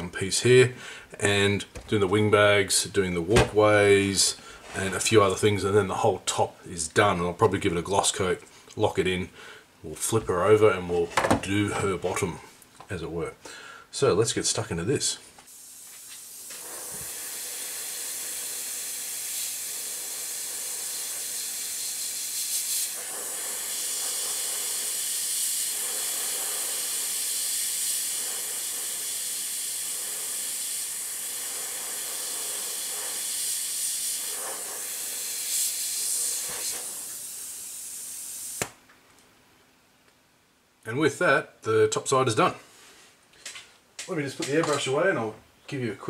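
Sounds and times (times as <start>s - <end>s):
airbrush spraying hiss: 15.4s - 38.7s.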